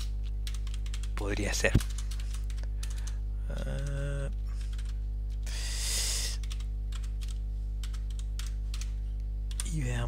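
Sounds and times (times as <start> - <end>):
electrical mains hum: 0.0 - 10.0
person humming: 3.4 - 4.6.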